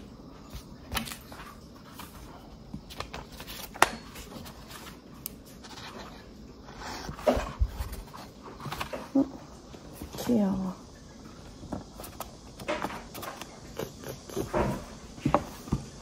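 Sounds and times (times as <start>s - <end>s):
pages turning: 0.5s - 6.3s, 7.0s - 9.2s, 11.7s - 15.0s.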